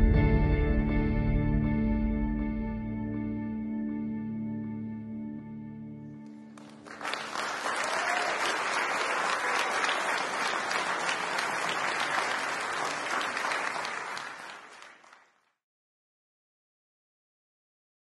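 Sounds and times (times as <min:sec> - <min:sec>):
audience applauding: 0:06.5 - 0:15.6.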